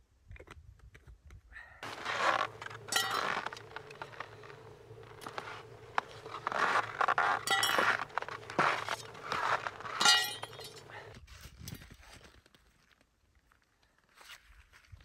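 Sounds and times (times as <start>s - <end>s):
ski gear clinks and scrapes: 1.8s - 12.8s.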